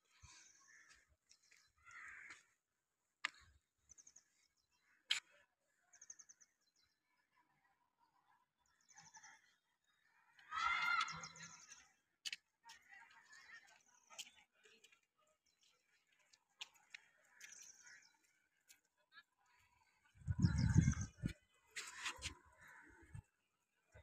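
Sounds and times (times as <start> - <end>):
birds chirping trills: 20.3 - 21.4.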